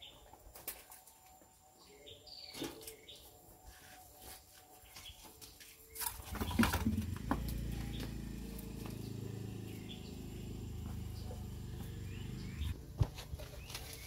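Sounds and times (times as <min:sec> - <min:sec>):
low engine-like hum: 0:06.6 - 0:13.0.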